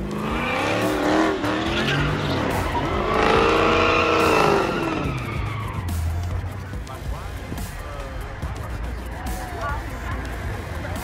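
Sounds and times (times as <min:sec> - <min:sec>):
tyres squealing and skidding: 0:00.0 - 0:06.5
car engine revving: 0:00.0 - 0:11.0.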